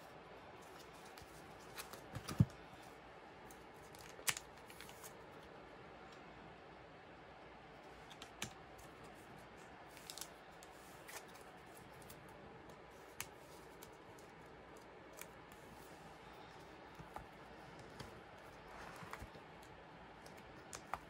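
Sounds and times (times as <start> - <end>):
plastic album sleeves clicking: 0.6 - 2.5, 3.9 - 5.1, 9.9 - 10.3.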